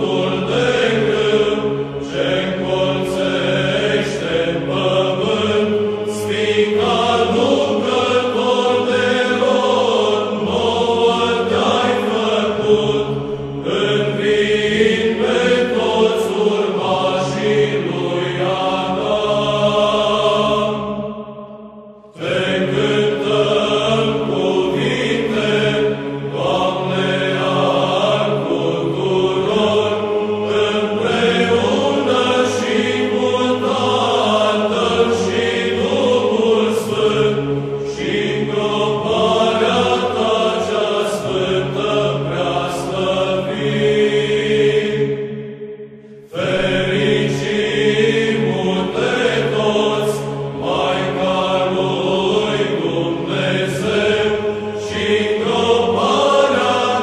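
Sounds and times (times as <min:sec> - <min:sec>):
choir chanting a hymn: 0:00.0 - 0:57.0.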